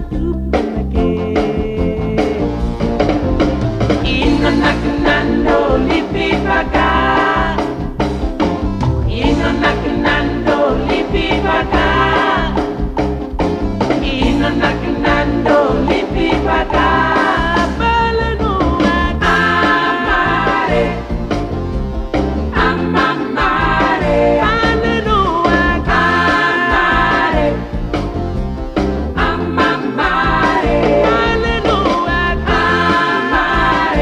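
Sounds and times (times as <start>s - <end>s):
person singing: 0.0s - 2.6s, 4.0s - 7.8s, 9.1s - 12.7s, 14.0s - 21.0s, 22.6s - 27.6s, 29.2s - 34.0s
upbeat band music: 0.0s - 34.0s.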